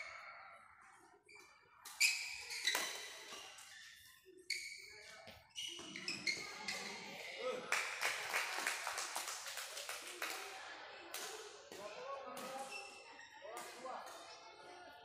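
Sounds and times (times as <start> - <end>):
shoes squeaking on court: 1.3 - 7.3, 12.5 - 13.4.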